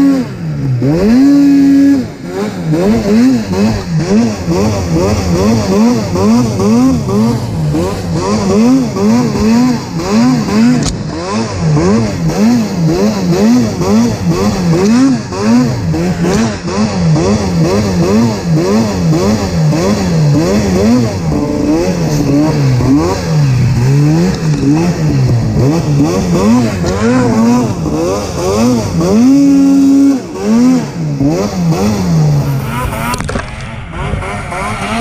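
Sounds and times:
snowmobile engine revving: 0:00.0 - 0:35.0.

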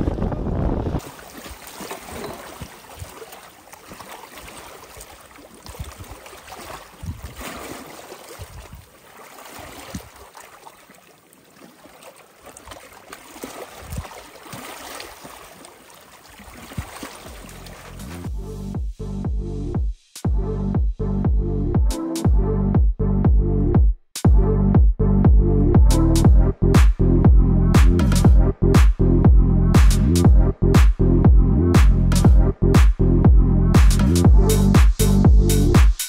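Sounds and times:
waves lapping against rocks: 0:00.2 - 0:18.2.

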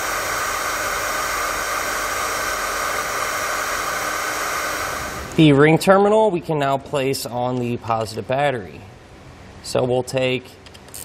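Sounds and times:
heat gun blowing hot air: 0:00.0 - 0:05.4.

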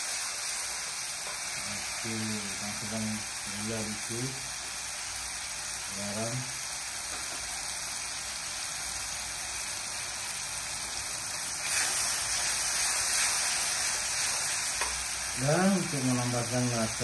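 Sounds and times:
paste sizzling in oil: 0:00.0 - 0:17.0.

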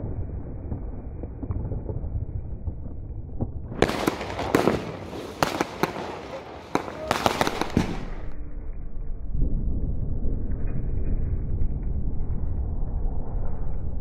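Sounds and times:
fireworks bangs and crackles: 0:00.0 - 0:08.4.

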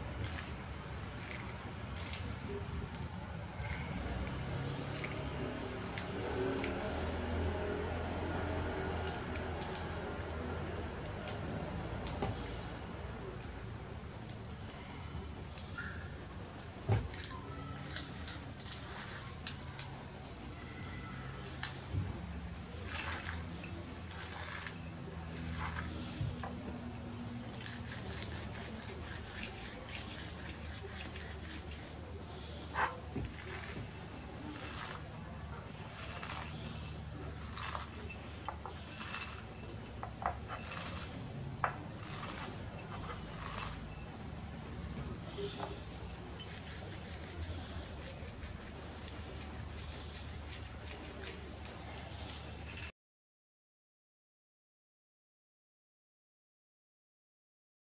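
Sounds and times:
dry herb leaves crackling: 0:00.0 - 0:52.9.

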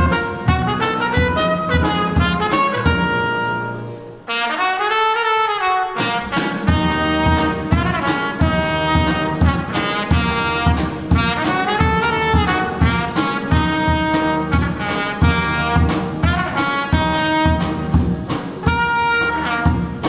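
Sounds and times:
drum kit: 0:00.0 - 0:20.0
trumpet melody: 0:00.0 - 0:20.0.

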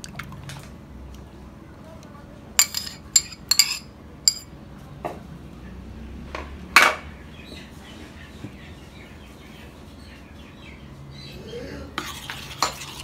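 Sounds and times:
ceramic dish clinking on bowl: 0:02.6 - 0:04.5
metal spoon knocking on bowl: 0:02.6 - 0:04.5.

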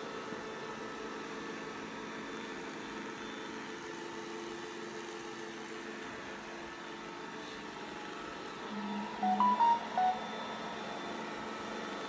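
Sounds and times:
steady mechanical hum: 0:00.0 - 0:12.0
faint steady tones: 0:08.7 - 0:10.7.

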